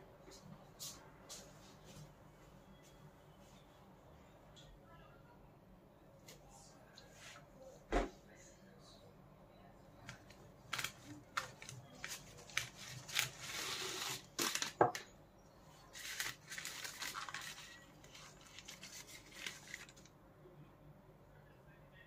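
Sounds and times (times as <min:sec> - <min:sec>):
paper crinkling: 0:10.1 - 0:15.0, 0:15.9 - 0:20.1.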